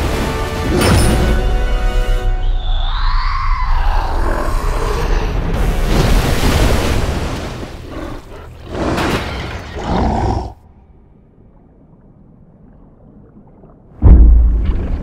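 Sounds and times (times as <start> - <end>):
heavy water splash: 5.4 - 9.8.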